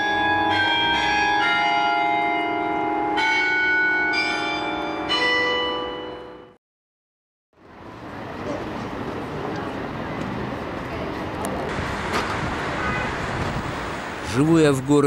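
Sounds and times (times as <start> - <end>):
church bells ringing: 0.0 - 6.6.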